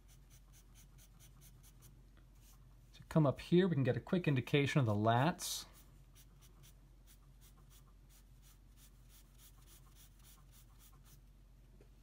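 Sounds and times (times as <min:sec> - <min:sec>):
pencil shading on paper: 0:00.0 - 0:02.6, 0:05.8 - 0:11.2.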